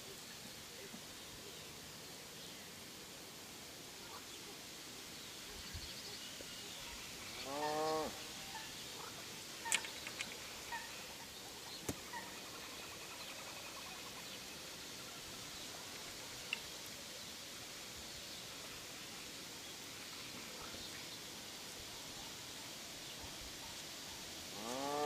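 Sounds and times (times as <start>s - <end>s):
faint outdoor hiss: 0.0s - 25.0s
sharp clicks: 9.6s - 10.4s.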